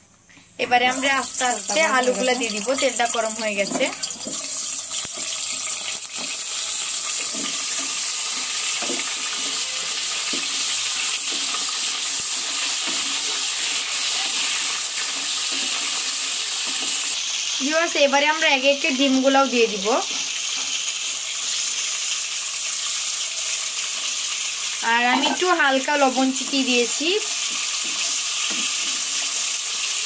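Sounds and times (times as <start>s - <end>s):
potatoes sizzling in hot oil: 0.6s - 30.0s.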